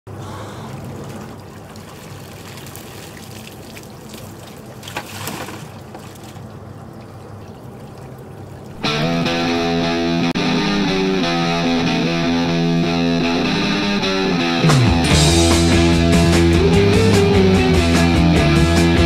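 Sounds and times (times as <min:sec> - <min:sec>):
water pouring and splashing: 0:00.5 - 0:08.8
water trickling in tank: 0:00.6 - 0:08.8.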